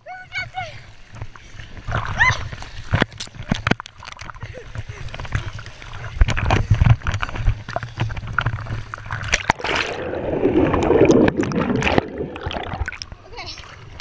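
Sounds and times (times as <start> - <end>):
water splashing and sloshing: 0.0 - 14.0
muffled underwater bubbling rush: 1.3 - 14.0.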